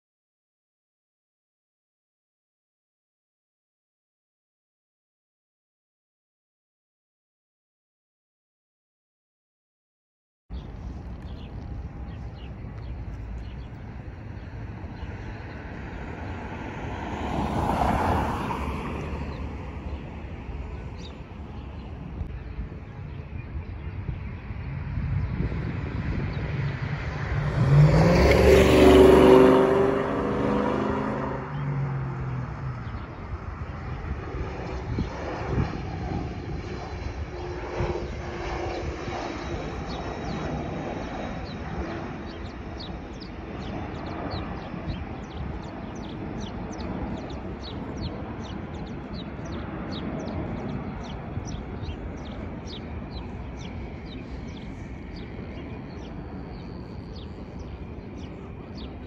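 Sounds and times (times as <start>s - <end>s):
airplane passing overhead: 10.5s - 59.0s
small bird chirping: 36.7s - 59.0s.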